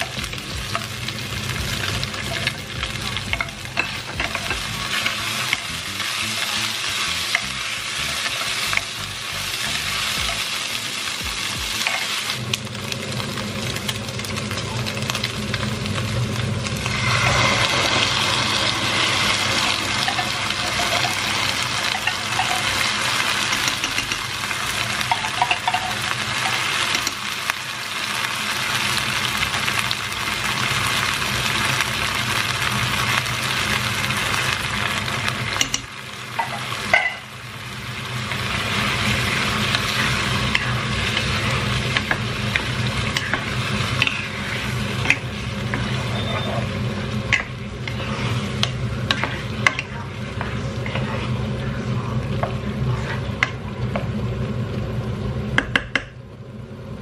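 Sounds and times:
food sizzling in pot: 0.0 - 56.3
wooden spatula stirring: 39.9 - 51.5.

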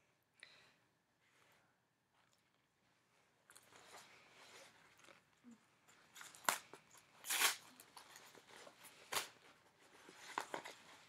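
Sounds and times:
paper rustling and crackling: 6.1 - 11.0
paper tearing: 7.2 - 7.8.

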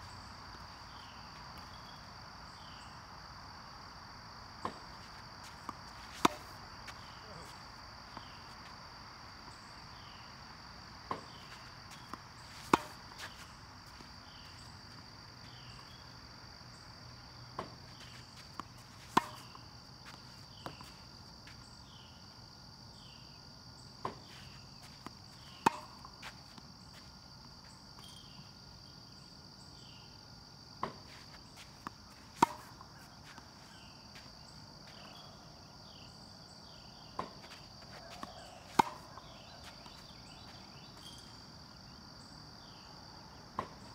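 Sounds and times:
insects droning: 0.0 - 43.9
tennis racket hitting ball: 5.6 - 8.4, 11.1 - 14.1, 17.6 - 19.6, 25.4 - 26.3, 31.8 - 33.1, 37.2 - 40.2.

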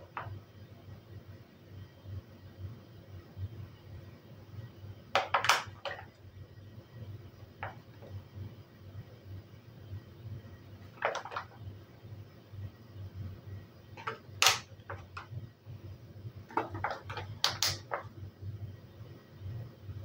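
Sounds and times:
sharp plastic snap: 14.0 - 14.7, 17.4 - 18.0
plastic tray crackling and clicking: 14.0 - 15.3.

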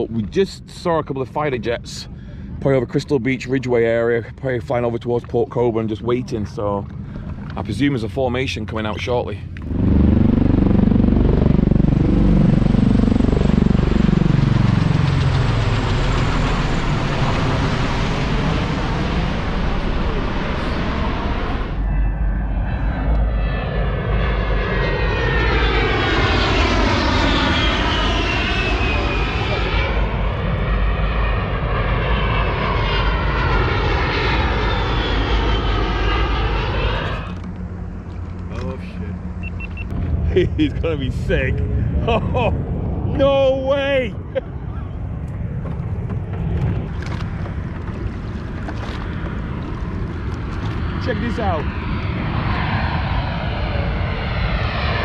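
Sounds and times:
aircraft rotors pulsing drone: 0.0 - 55.0.

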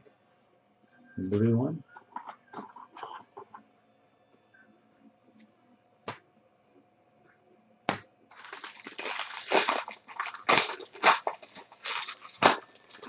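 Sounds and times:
foil wrapper crackling: 8.3 - 13.0.

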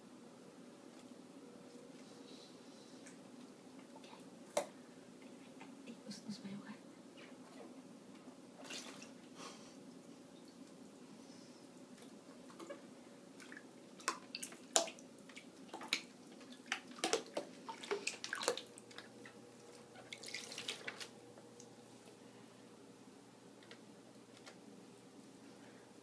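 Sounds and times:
animal splashing in water: 13.4 - 21.2
stirred water swishing: 13.4 - 21.2.

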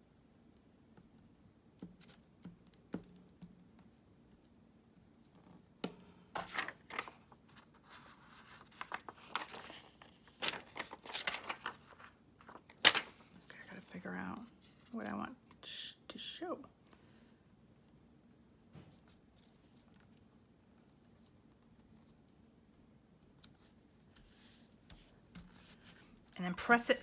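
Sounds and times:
plastic film crinkling: 6.4 - 13.2.

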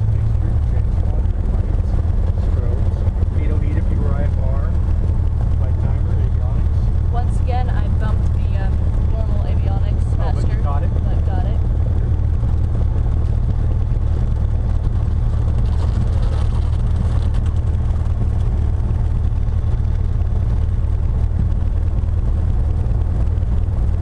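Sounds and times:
airplane engine drone in cabin: 0.0 - 24.0.

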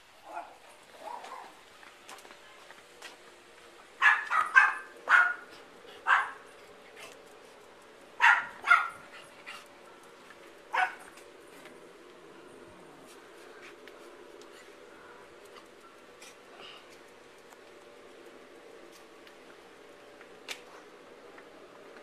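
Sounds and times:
small dog barking: 0.2 - 1.6, 4.0 - 6.4, 8.2 - 9.0, 10.7 - 11.1.

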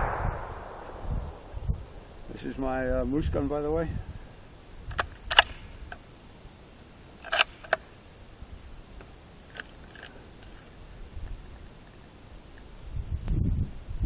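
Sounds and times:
rifle bolt clacking: 4.9 - 5.6, 7.2 - 7.8.

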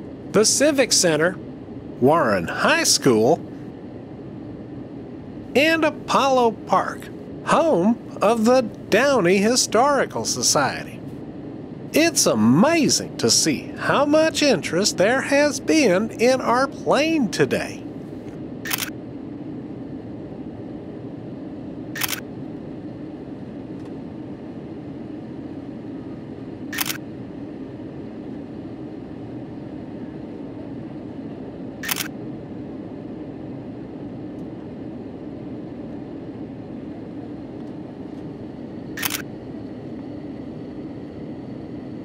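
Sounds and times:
steady low rumble: 0.0 - 42.0
camera shutter clicking: 18.7 - 18.9, 39.0 - 39.2.

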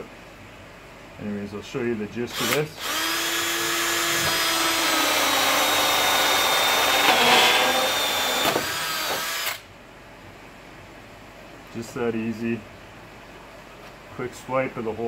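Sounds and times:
cordless drill cutting plastic pipe: 2.4 - 9.6.

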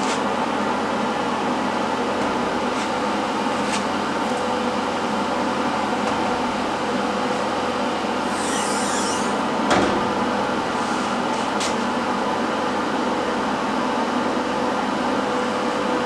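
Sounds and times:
mechanical hum: 0.0 - 16.0
high metallic squeak: 8.3 - 9.4.

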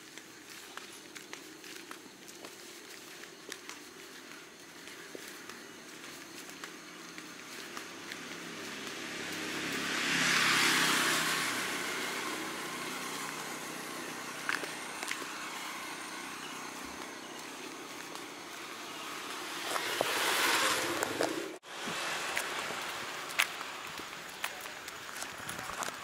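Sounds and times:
tyres hissing on wet road: 7.4 - 26.0.

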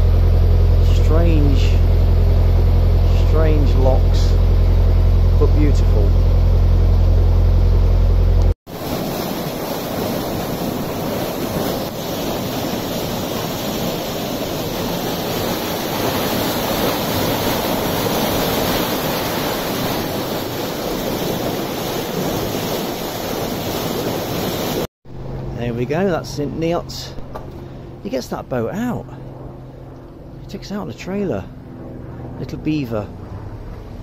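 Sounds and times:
boat engine running: 0.0 - 34.0
water swirling into culvert: 8.7 - 24.9.

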